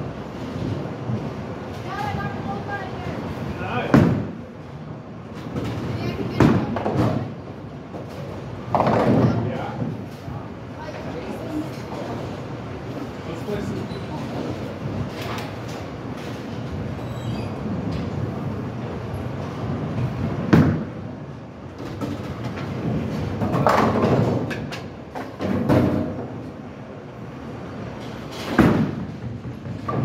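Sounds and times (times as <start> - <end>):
bowling balls rolling: 0.2 - 10.3, 14.2 - 30.0.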